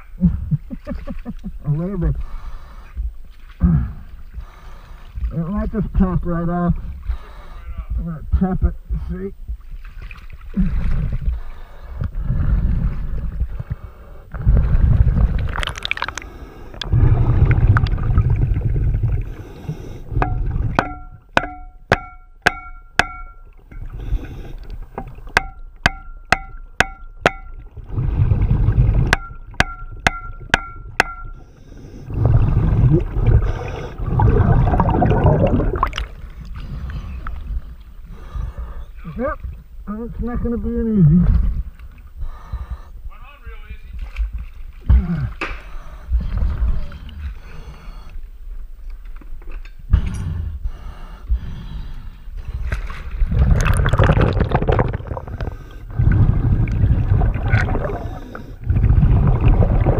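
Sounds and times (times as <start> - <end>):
underwater bubbling: 9.4 - 21.7, 23.1 - 39.8, 49.8 - 59.9
hammer tapping metal underwater: 20.2 - 23.9, 25.0 - 27.6, 29.0 - 31.4.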